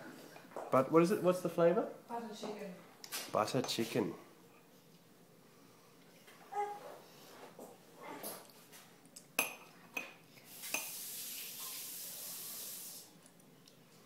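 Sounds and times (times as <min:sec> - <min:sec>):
steady hiss: 0:10.4 - 0:13.3.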